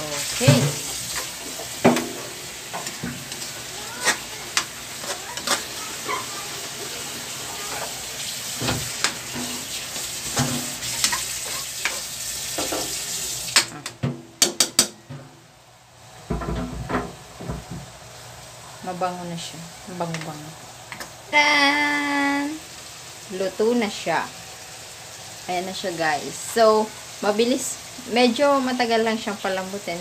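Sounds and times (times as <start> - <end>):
meat sizzling in a wok: 0.0 - 13.8, 17.2 - 30.0
metal spatula scraping a wok: 0.3 - 6.4, 7.8 - 12.9.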